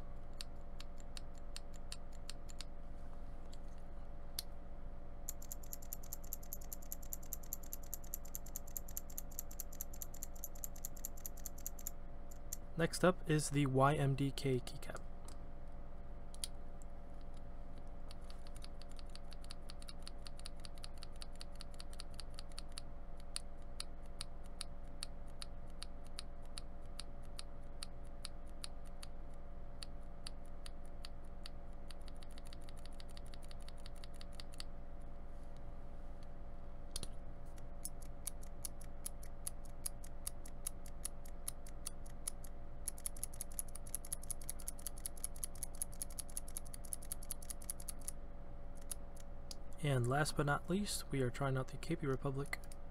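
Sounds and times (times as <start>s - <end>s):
keyswitch clicking: 5.3s - 12.6s, 37.0s - 48.2s.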